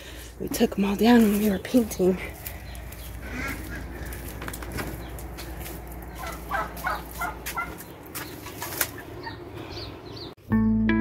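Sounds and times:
poultry calling: 0:01.3 - 0:10.3
low rumble: 0:01.6 - 0:08.1.

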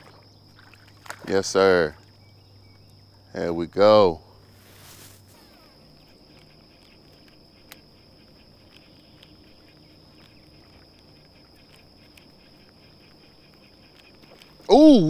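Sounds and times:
soft ticks: 0:05.3 - 0:14.7.

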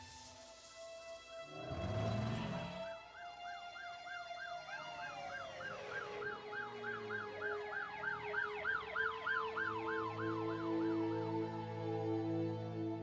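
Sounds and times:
soft sustained music notes: 0:00.0 - 0:13.0
wailing siren: 0:01.4 - 0:13.0
siren yelping: 0:02.6 - 0:12.2.

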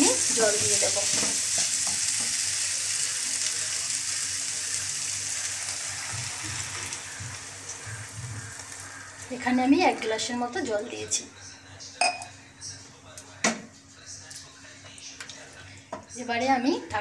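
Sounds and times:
masala sizzling in hot oil: 0:00.0 - 0:10.8.

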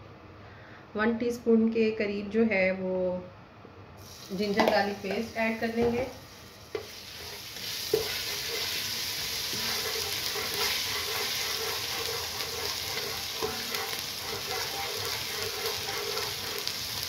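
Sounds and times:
paste sizzling in hot oil: 0:04.0 - 0:05.4, 0:06.1 - 0:17.0.

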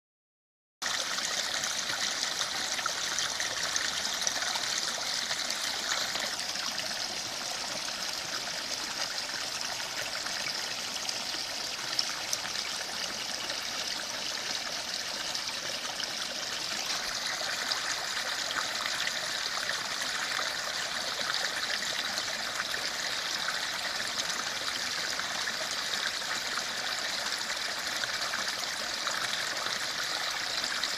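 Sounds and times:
stream trickling over stones: 0:00.8 - 0:30.9.

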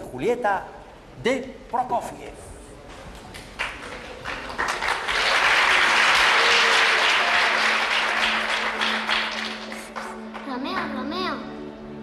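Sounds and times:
children applauding: 0:03.6 - 0:10.5.

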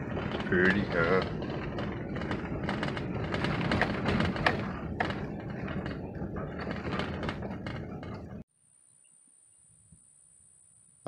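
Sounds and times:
sharp knocks and rattles: 0:00.0 - 0:08.5
vehicle road and engine rumble: 0:00.0 - 0:08.5.

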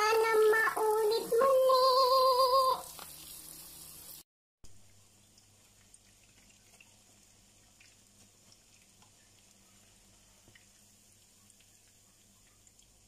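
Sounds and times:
omelettes sizzling in oil: 0:00.0 - 0:04.3, 0:05.0 - 0:13.0
oil popping: 0:02.4 - 0:03.6, 0:05.2 - 0:13.0.

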